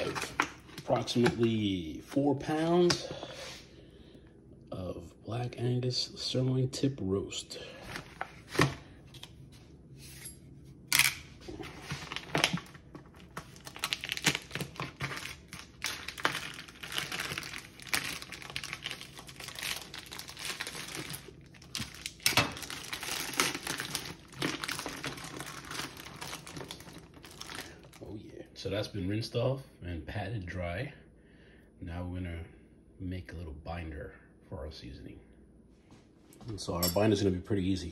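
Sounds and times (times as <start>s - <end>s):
plastic wrap crinkling and tearing: 0.0s - 1.6s, 10.9s - 28.1s.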